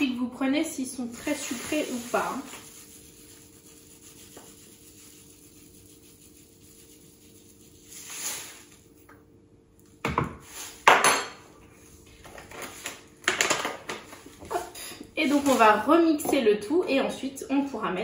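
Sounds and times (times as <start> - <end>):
plastic bag rustling: 1.1 - 5.1, 6.4 - 9.0, 14.2 - 15.9.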